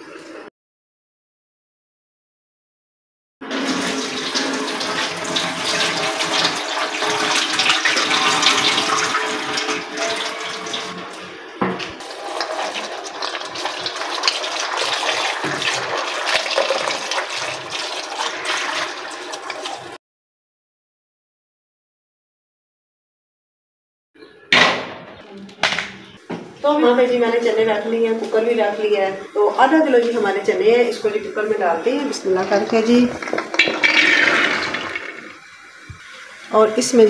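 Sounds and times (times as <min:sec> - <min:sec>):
tap water running into bowl: 0:03.5 - 0:20.0, 0:31.9 - 0:36.4.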